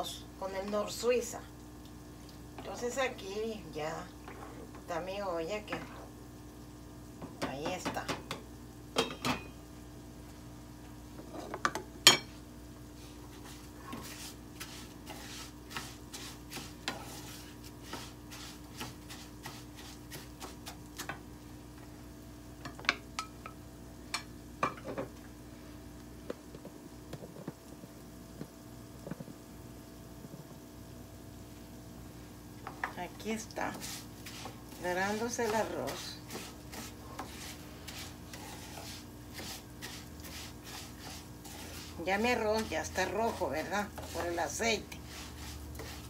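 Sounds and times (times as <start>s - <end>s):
plastic spoon scraping frying pan: 13.3s - 21.1s, 33.5s - 46.0s.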